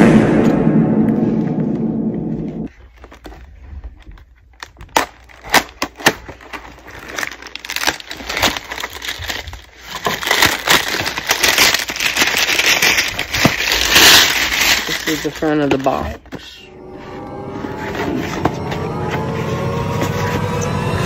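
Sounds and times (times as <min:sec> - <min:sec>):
cardboard and packaging crinkling: 0:02.7 - 0:16.6.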